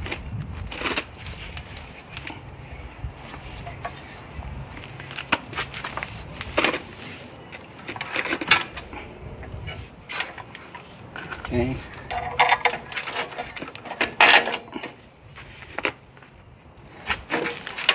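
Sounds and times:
metal knocks clicks and scrapes: 9.7 - 15.0, 17.1 - 17.9.

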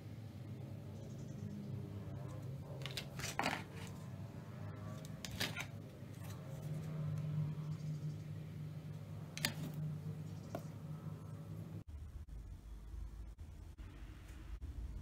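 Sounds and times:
steady low hum: 0.0 - 15.0
plastic and cardboard handling: 2.8 - 4.0.

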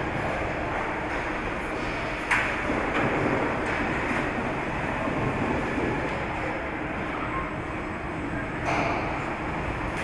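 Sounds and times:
factory machinery rumbling: 0.0 - 10.0.

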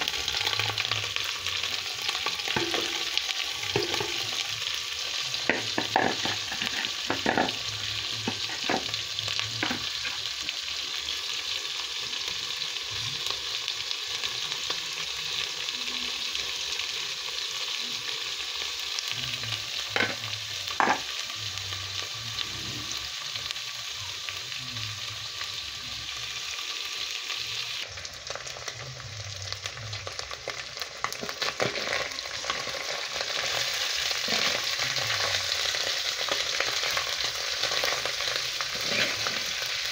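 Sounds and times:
fish sizzling in oil: 0.0 - 39.9
metal spoon scraping a pot: 5.5 - 7.6, 38.7 - 39.6.

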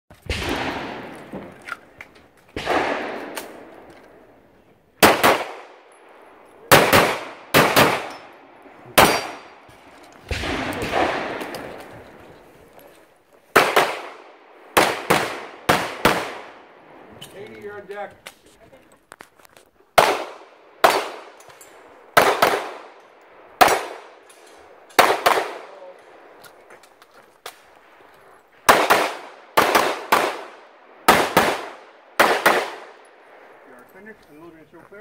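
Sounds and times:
pistol shots: 0.2 - 1.8, 2.6 - 3.9, 5.0 - 5.9, 6.7 - 8.3, 8.9 - 9.6, 10.2 - 12.0, 13.5 - 16.7, 20.0 - 21.5, 22.1 - 23.0, 23.6 - 24.3, 24.9 - 26.0, 28.7 - 33.0
steel targets clanging: 9.0 - 9.6.

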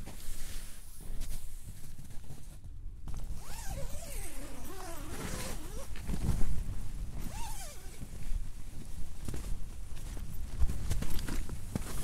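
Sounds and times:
wind rumble on microphone: 1.0 - 12.0
tent zipper pulled: 3.2 - 8.2.

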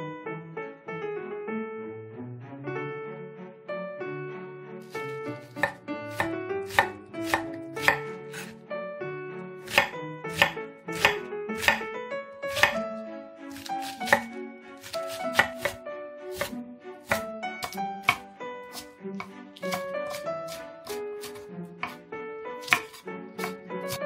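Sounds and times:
background music: 0.0 - 24.0
knife strikes on wooden board: 4.9 - 8.5, 9.7 - 11.9, 12.5 - 12.8, 13.5 - 15.8, 16.4 - 22.0, 22.6 - 24.0.

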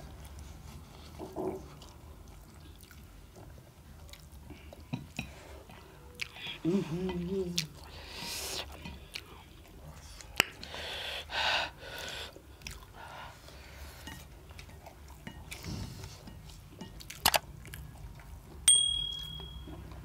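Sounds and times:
slurping and chewing noodles: 0.0 - 18.6
bell ding sound effect: 18.7 - 19.8.

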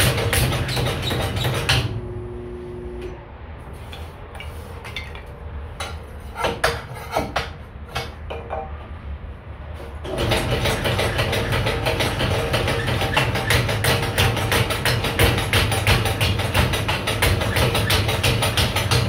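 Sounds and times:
sharp wooden knocks: 10.1 - 19.0.

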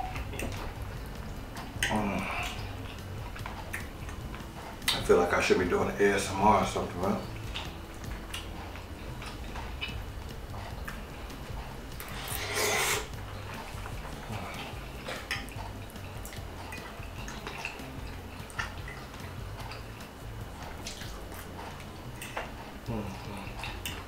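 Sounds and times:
chewing: 0.0 - 5.5, 7.1 - 24.0
fork scraping ceramic plate: 12.0 - 13.1.

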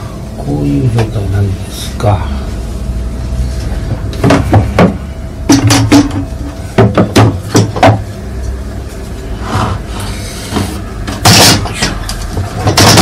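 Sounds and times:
hollow plastic knocks on wood: 6.8 - 8.0.

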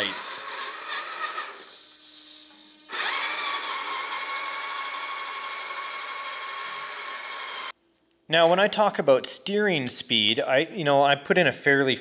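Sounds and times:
electric motor whining: 0.0 - 7.7.

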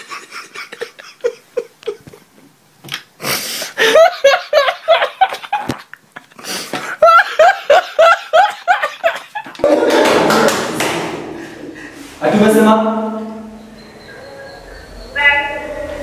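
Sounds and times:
man laughing hysterically: 0.0 - 2.3, 3.6 - 10.2.

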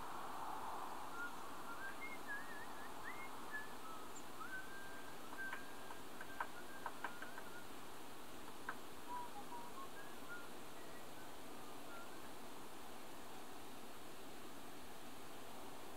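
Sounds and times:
steady hiss: 0.0 - 15.9
faint whistled bird song: 0.8 - 12.7.

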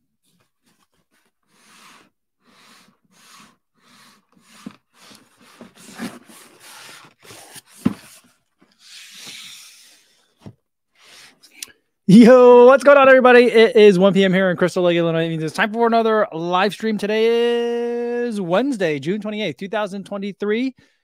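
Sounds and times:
cardboard box scraping: 1.2 - 10.1
cardboard box scuffing on desk: 4.4 - 8.3.

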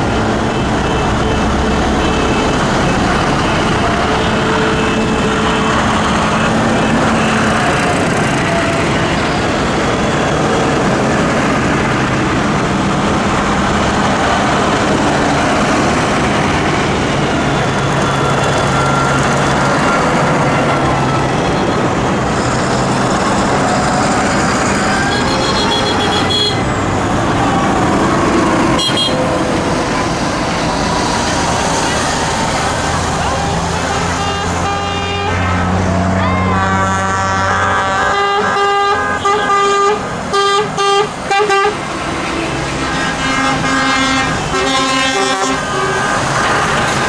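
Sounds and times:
tyre noise on wet road: 0.0 - 36.5
tractors driving past: 0.0 - 47.0.

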